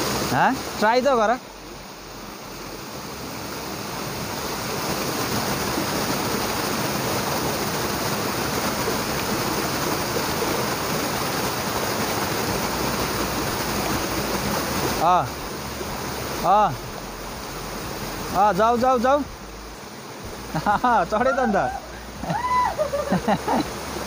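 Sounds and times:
river water rushing over rocks: 0:00.0 - 0:24.0.

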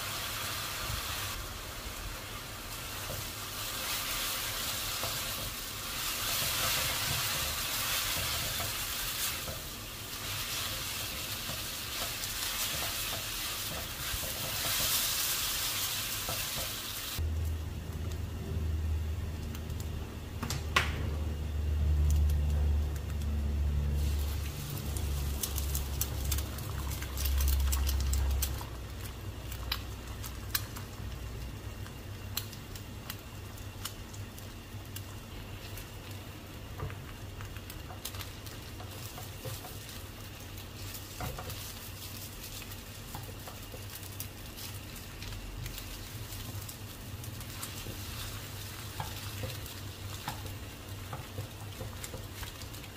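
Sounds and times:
eggs sizzling in oil: 0:00.0 - 0:20.3, 0:23.4 - 0:52.9
spatula scraping and tapping pan: 0:11.3 - 0:15.0, 0:41.1 - 0:41.8.

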